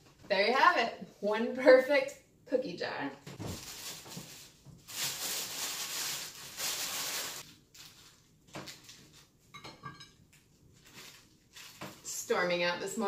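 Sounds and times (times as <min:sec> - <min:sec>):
treat bags rustling: 0:03.3 - 0:09.4, 0:10.6 - 0:12.1.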